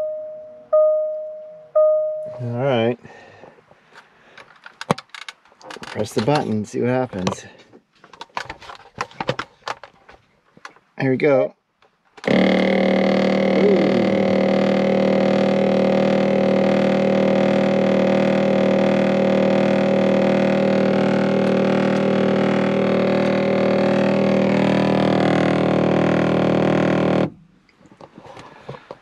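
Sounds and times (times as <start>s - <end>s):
sunshade motor droning: 12.2s - 27.4s.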